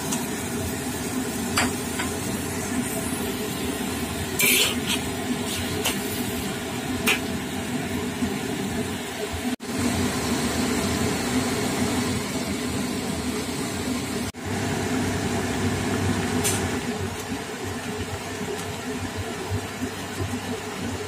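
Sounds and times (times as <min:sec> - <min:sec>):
gas flame hissing: 0:00.0 - 0:14.4
food frying in a wok: 0:00.0 - 0:21.0.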